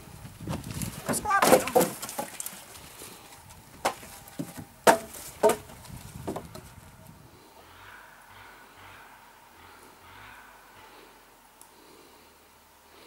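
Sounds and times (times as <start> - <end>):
logs clattering onto woodpile: 0.4 - 6.8.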